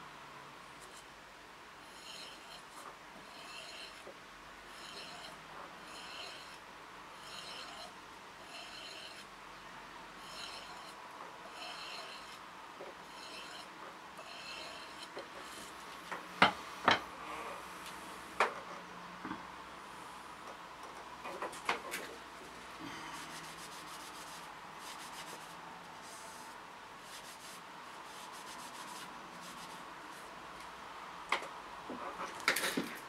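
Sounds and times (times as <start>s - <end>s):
knife scraping on sharpening bar: 1.8s - 4.1s, 4.7s - 6.6s, 7.2s - 9.3s, 10.2s - 12.4s, 13.0s - 15.8s.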